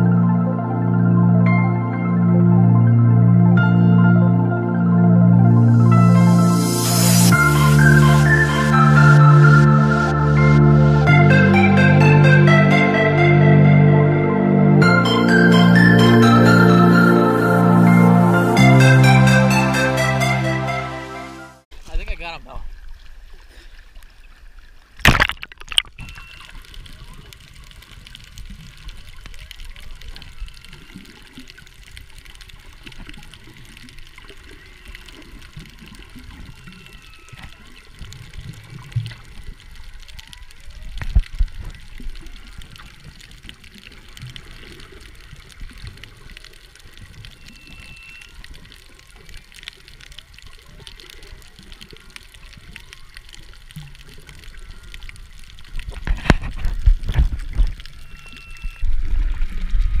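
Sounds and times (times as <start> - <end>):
whale song moans and whistles: 0.0 - 21.5, 34.6 - 38.9, 47.0 - 49.2, 57.9 - 60.0
water rushing against microphone: 4.4 - 60.0.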